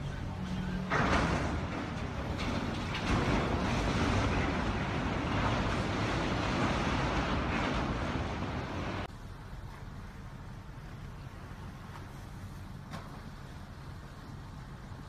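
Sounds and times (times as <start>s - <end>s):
low rumble: 0.0s - 14.9s
water churning against hull: 0.0s - 15.0s.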